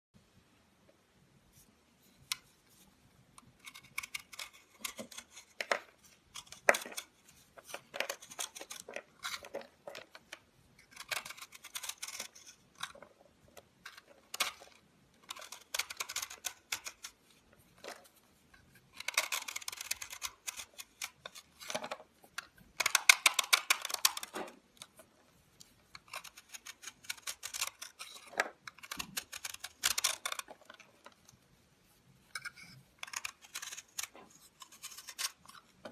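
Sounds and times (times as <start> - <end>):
knife carving crunchy soap: 3.4 - 22.0, 26.0 - 31.0, 32.4 - 35.9.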